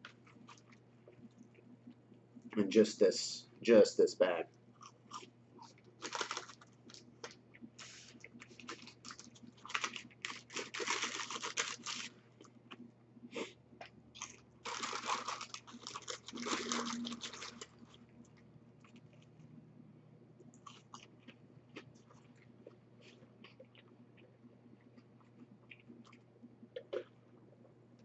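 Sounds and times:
paper bag crinkling and rustling: 0:06.0 - 0:07.0, 0:07.8 - 0:12.1, 0:14.6 - 0:17.9.

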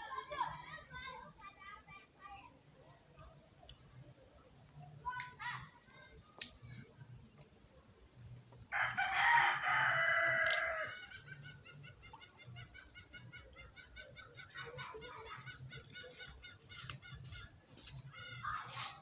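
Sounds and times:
rooster crowing: 0:08.7 - 0:11.0.

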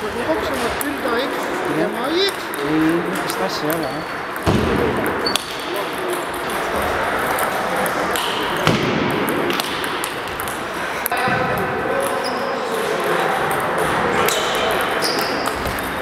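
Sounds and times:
murmur of voices: 0:00.0 - 0:16.0
table tennis ball clicking: 0:09.2 - 0:11.2.

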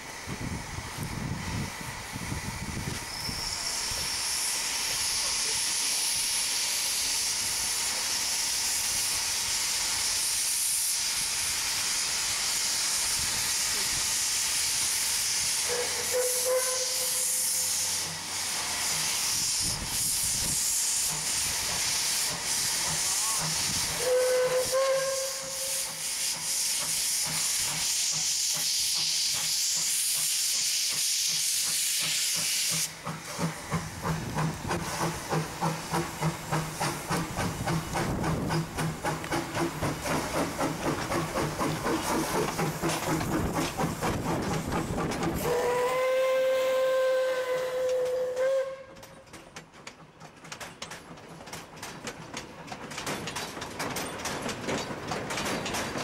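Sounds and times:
steam hissing: 0:00.0 - 0:48.8
steam whistle toots: 0:03.0 - 0:07.4, 0:13.2 - 0:21.1, 0:22.0 - 0:32.9, 0:45.4 - 0:49.2
locomotive exhaust beat: 0:14.6 - 0:56.0.

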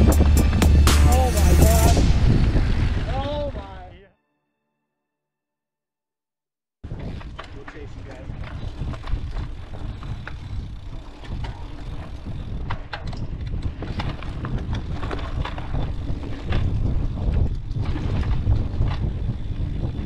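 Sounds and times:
bike tyres rumbling on dirt: 0:00.0 - 0:03.8, 0:06.8 - 0:20.0
wind buffeting microphone: 0:00.0 - 0:03.9, 0:06.8 - 0:20.0
bike rattling and clicking: 0:06.8 - 0:20.0.

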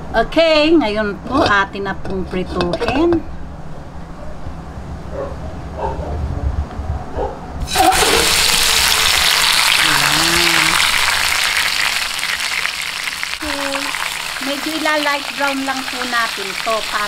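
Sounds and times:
oil sizzling in a wok: 0:07.7 - 0:17.0.

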